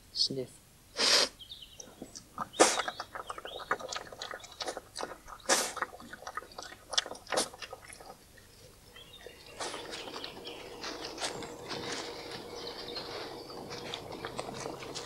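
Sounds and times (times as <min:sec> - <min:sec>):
badger sniffing: 0:01.0 - 0:01.4, 0:02.5 - 0:03.0, 0:05.4 - 0:05.9, 0:09.5 - 0:10.1
scraping and clicking soil: 0:01.8 - 0:15.0.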